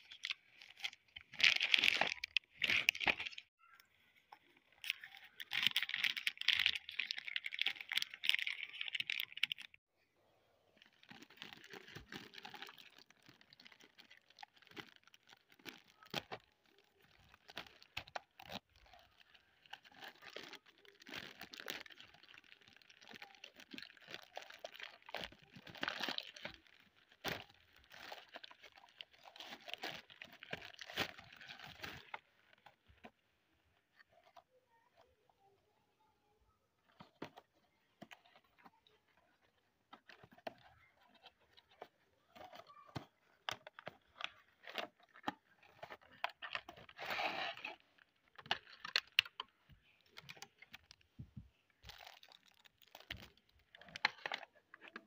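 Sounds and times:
plastic bag crinkling: 0.0s - 3.5s, 4.8s - 9.8s, 10.8s - 32.6s, 43.2s - 51.0s, 51.7s - 55.0s.

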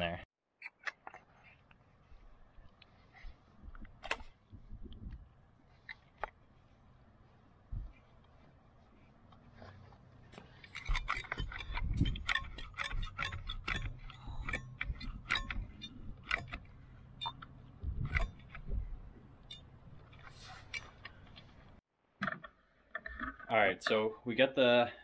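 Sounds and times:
caulking gun clicking and rattling: 10.6s - 18.8s.

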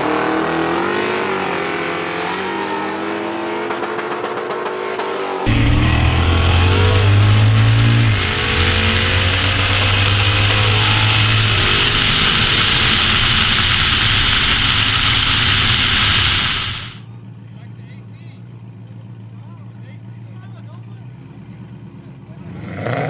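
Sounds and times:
drag car engine at full throttle: 0.0s - 17.1s
wind rush on microphone: 7.0s - 17.0s.

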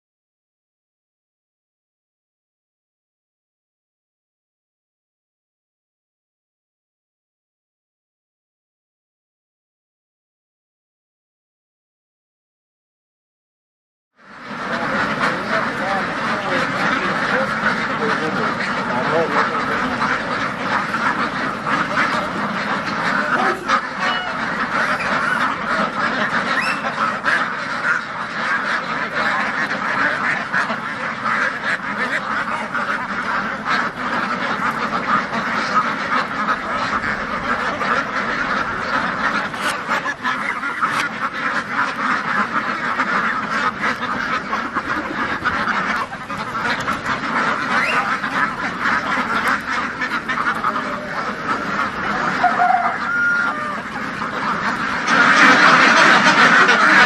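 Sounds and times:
flock of ducks quacking: 14.2s - 57.0s.

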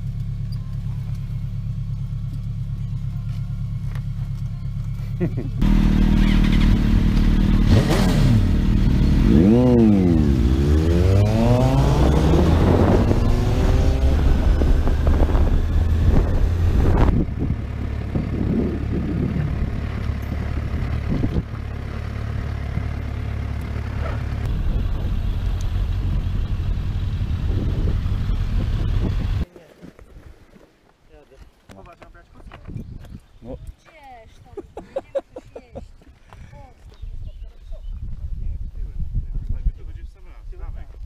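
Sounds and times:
motorcycle engines revving: 0.0s - 29.5s.

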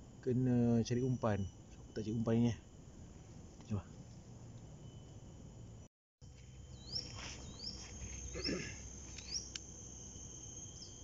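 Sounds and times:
insects droning: 0.0s - 11.0s
short rising chirp: 6.5s - 11.0s.

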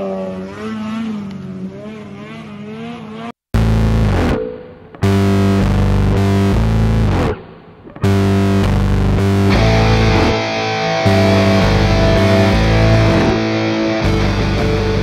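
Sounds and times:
distorted electric guitar music: 3.6s - 15.0s.

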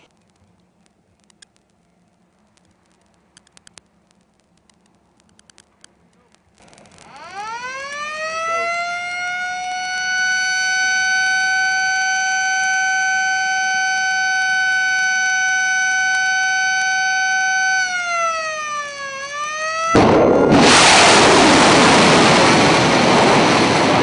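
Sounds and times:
warning siren: 6.9s - 23.0s
rocket booster blast: 19.9s - 24.0s.

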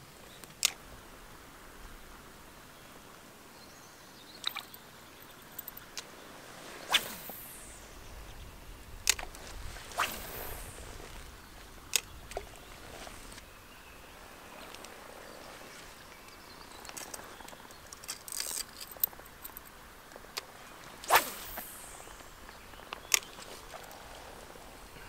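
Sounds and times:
fishing rod swishing through air: 6.6s - 8.0s, 9.1s - 11.3s, 21.0s - 22.4s.

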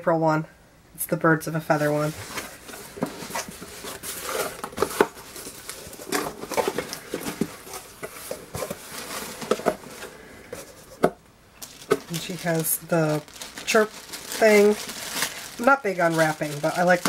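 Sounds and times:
cardboard box scraping and rustling: 1.8s - 11.1s.

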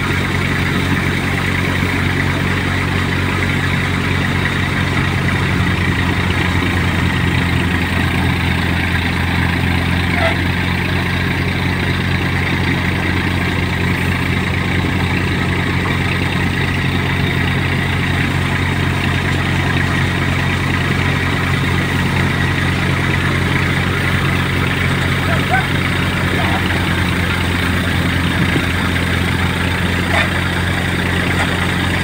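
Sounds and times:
diesel engine droning: 0.0s - 32.0s
thresher drum whirring: 0.0s - 32.0s.

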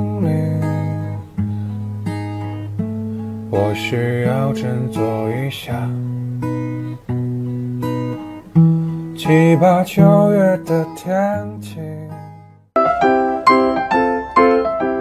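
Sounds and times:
person singing: 0.0s - 1.3s, 3.5s - 6.2s, 9.2s - 12.2s
acoustic guitar strumming: 0.0s - 15.0s.

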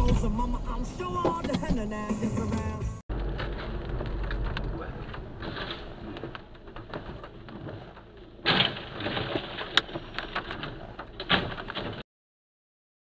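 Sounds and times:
van crashing: 3.1s - 12.0s
sharp knocks of sliding debris: 3.3s - 12.0s.

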